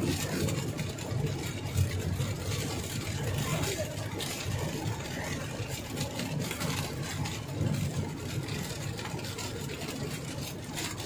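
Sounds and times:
engine and road rumble: 0.0 - 11.0
rain tapping on windscreen: 0.0 - 11.0
tyres hissing on wet road: 0.0 - 11.0.

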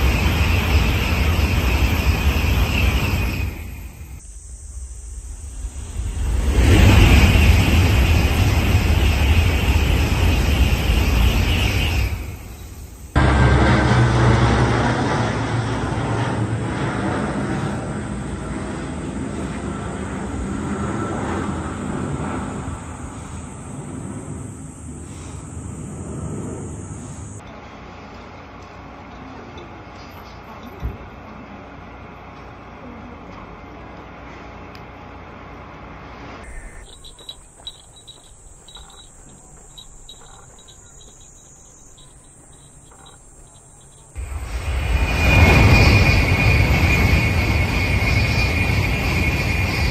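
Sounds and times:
insects chirping: 0.0 - 13.2, 19.3 - 27.5, 36.4 - 49.9
thin steady high whine: 0.0 - 29.4, 32.8 - 49.9
propeller plane engine drone: 0.0 - 49.9.

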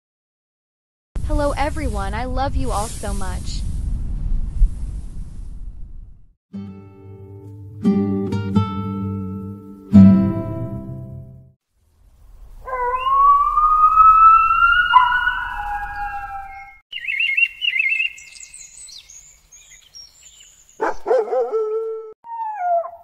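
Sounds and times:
wolf howling: 12.6 - 16.8, 21.1 - 23.0
high chirping: 12.7 - 20.9.

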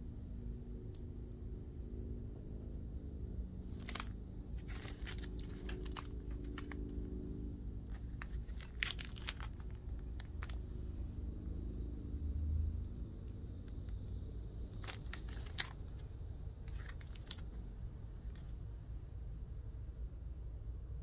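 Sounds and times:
plastic sleeves crinkling: 3.6 - 7.2, 7.8 - 10.7, 14.8 - 17.6.

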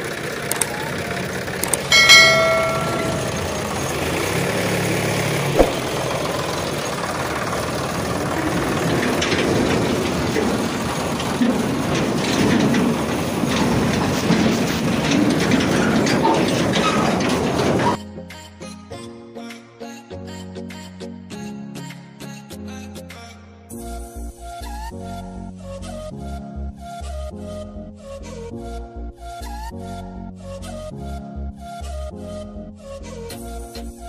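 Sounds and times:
vehicle rumbling and rattling: 0.0 - 18.0
scattered clicks: 0.4 - 1.0, 1.6 - 3.3
sharp knock: 5.6 - 5.9.

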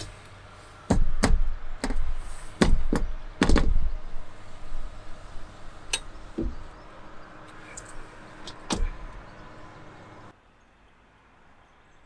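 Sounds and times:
panel knocking on metal roof: 0.9 - 3.9.

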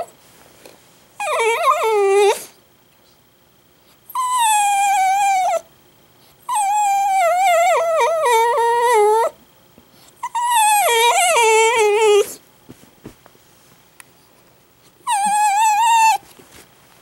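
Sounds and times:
dog whine-howling: 1.2 - 2.5, 4.1 - 5.7, 6.5 - 9.4, 10.2 - 12.4, 15.0 - 16.2.

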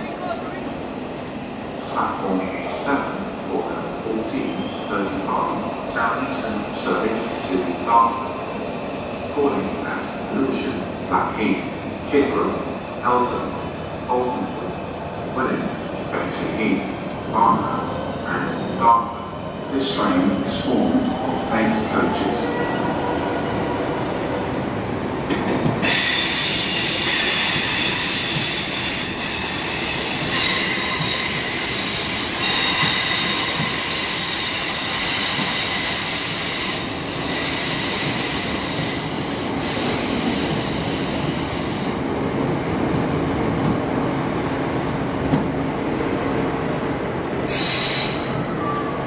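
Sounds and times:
rumble of train wheels: 0.0 - 49.0
train wheels squealing on rails: 4.3 - 5.5, 25.4 - 42.0, 47.4 - 49.0.

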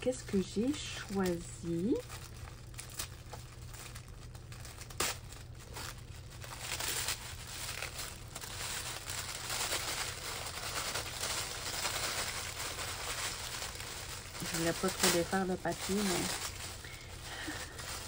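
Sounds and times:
tissue paper crinkling: 0.0 - 18.0.

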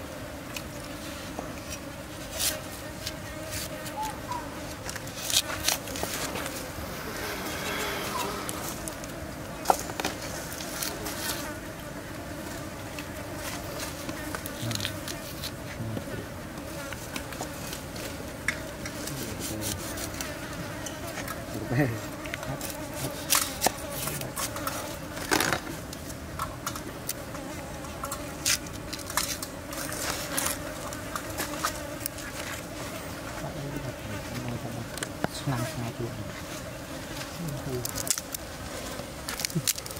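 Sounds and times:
insects buzzing: 0.0 - 39.9
onion being peeled: 4.8 - 6.6, 14.4 - 15.6.

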